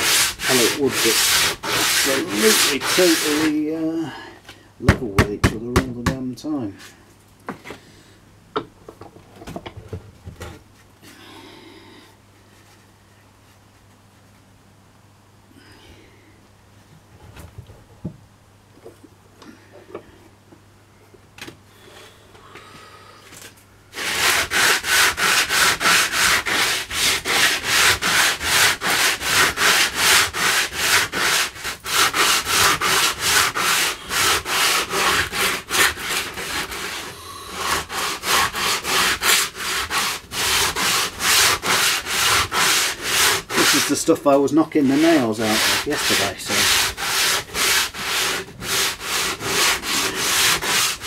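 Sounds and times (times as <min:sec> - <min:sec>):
sandpaper rubbing on wood: 0:00.0 - 0:03.8, 0:24.0 - 0:51.0.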